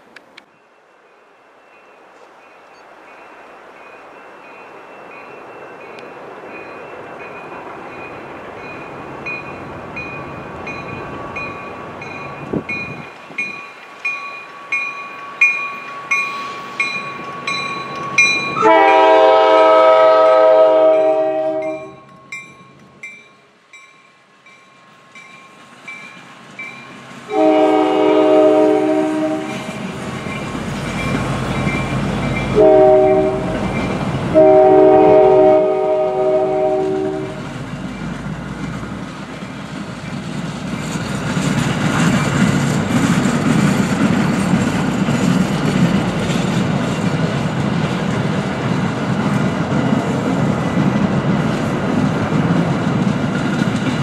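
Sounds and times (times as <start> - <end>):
crossing bell ringing: 0.4 - 38.3
train horn blasts: 18.6 - 22.0, 27.3 - 29.8, 32.5 - 37.5
train wheels clacking over rails: 25.2 - 35.3, 36.0 - 54.0.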